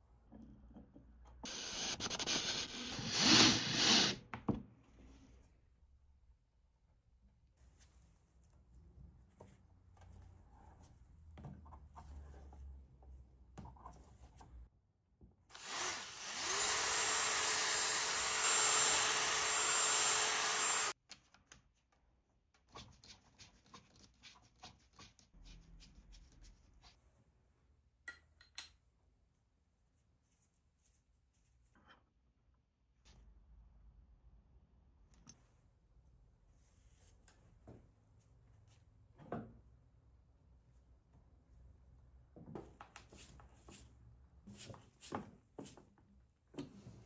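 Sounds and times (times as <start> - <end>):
electric power tool motor: 15.5 - 20.9.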